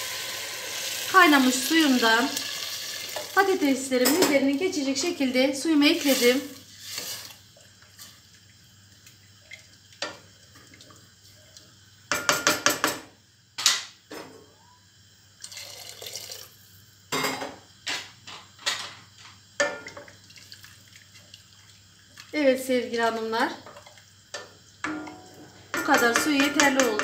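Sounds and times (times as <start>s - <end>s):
spoon knocking and scraping a pot: 12.1s - 13.1s, 23.6s - 27.0s.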